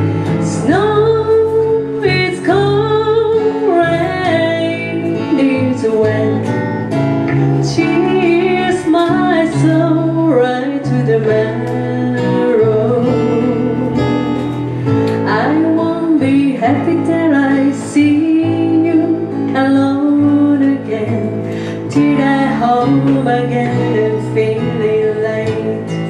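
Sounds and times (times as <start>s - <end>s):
bass guitar: 0.0s - 26.0s
strummed acoustic guitar: 0.0s - 26.0s
woman singing: 0.2s - 26.0s.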